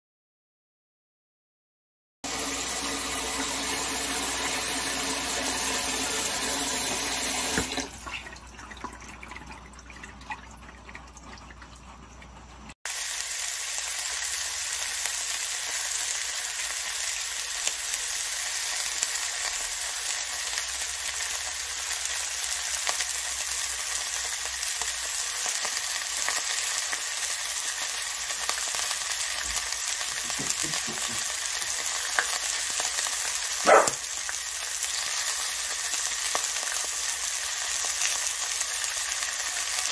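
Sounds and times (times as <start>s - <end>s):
food sizzling on a grill pan: 2.3s - 7.6s, 12.9s - 39.9s
tap water running into a bowl: 2.3s - 13.0s, 22.6s - 39.9s.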